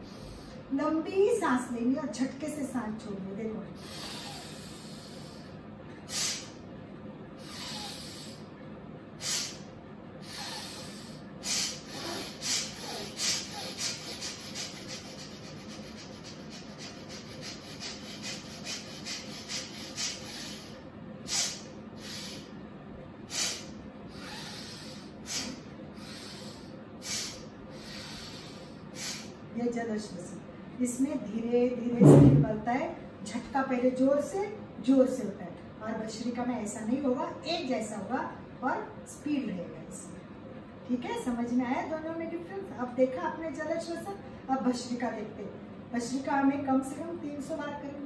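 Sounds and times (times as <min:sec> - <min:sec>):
hissing nasal exhalation puffs: 0:03.8 - 0:06.6, 0:07.4 - 0:08.5, 0:09.2 - 0:22.6, 0:23.3 - 0:29.4
woman doing rapid breathing: 0:03.8 - 0:06.6, 0:07.4 - 0:08.5, 0:09.2 - 0:22.6, 0:23.2 - 0:29.4.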